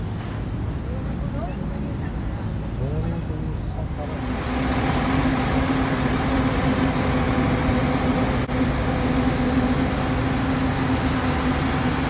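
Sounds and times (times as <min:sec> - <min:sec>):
bus engine idling: 0:00.0 - 0:12.0.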